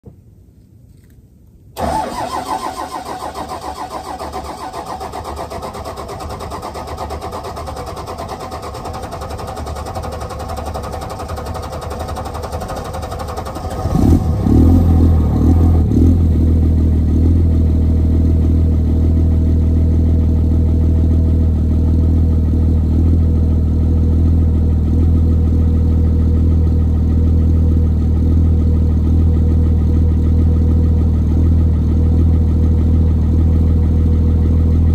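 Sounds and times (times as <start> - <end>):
diesel engine cranking on starter: 1.8 - 16.0
diesel engine idling: 1.8 - 34.9.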